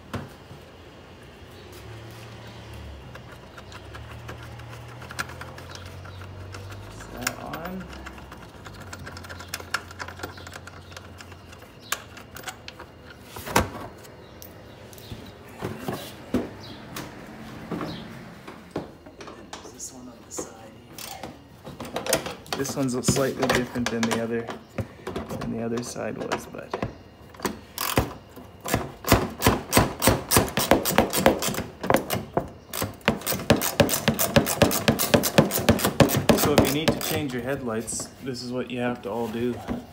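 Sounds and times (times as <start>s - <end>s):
hand tool clicking on bolts: 28.7s - 37.4s.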